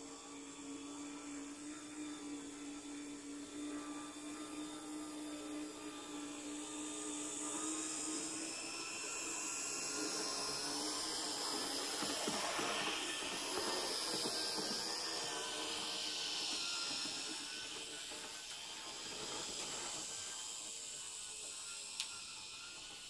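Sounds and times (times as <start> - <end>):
model train running on track: 0.0 - 23.0.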